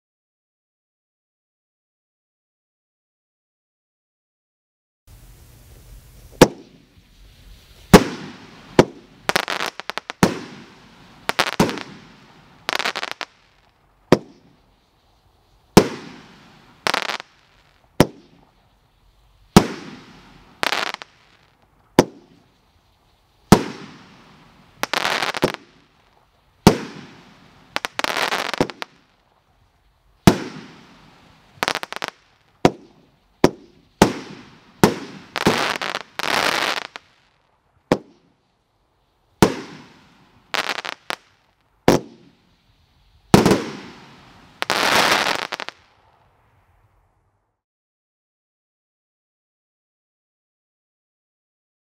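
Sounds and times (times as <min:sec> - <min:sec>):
fireworks reports: 0:05.1 - 0:37.1, 0:39.4 - 0:41.3, 0:43.3 - 0:46.2
fireworks crackle: 0:05.1 - 0:47.4.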